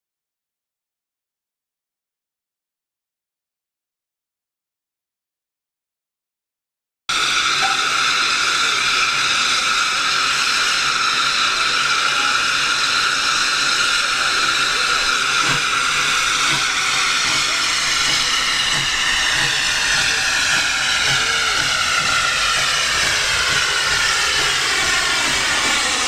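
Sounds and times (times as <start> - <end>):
steam locomotive hissing: 7.1 - 26.0.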